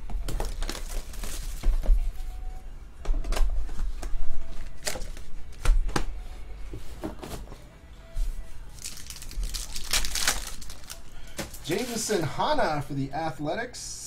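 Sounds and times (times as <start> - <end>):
cardboard and wrappers crinkling: 0.2 - 2.2, 8.8 - 12.4.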